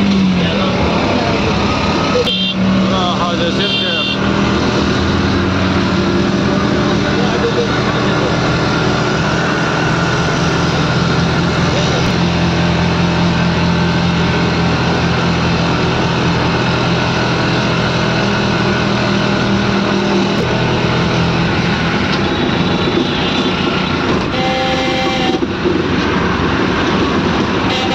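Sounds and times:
road and wind rush: 0.0 - 27.9
vehicle engine hum: 0.0 - 27.9
vehicle horn: 2.2 - 2.7, 3.6 - 4.3, 22.9 - 25.5, 27.7 - 27.9.

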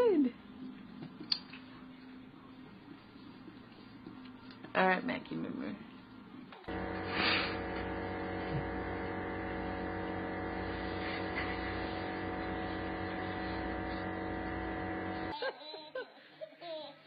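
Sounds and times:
machine hum: 6.7 - 15.4.

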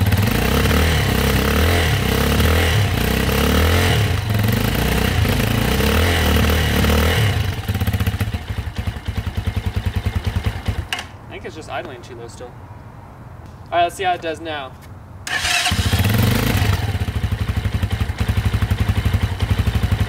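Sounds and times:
motorcycle engine revving: 0.0 - 11.0, 15.3 - 20.0.

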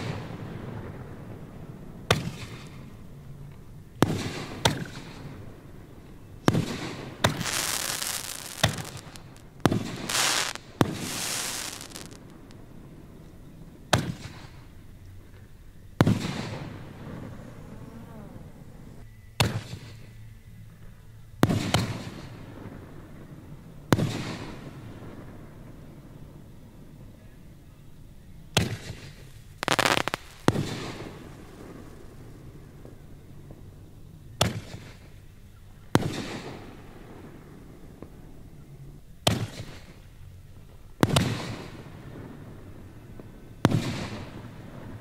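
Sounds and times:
hiss after bangs: 6.4 - 12.5, 28.6 - 33.7
firework shells bursting: 6.4 - 12.6, 28.6 - 33.6.

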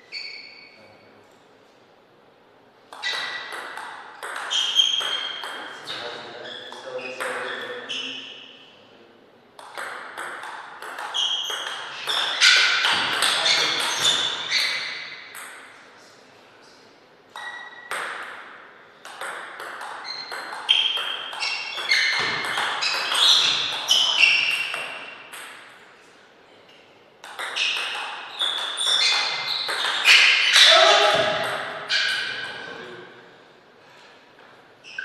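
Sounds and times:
table tennis ball clicks: 9.6 - 14.1.

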